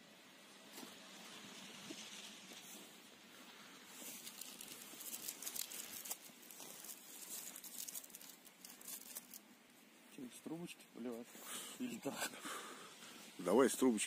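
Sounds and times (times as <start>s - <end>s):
plastic packet crinkling: 4.0s - 9.4s.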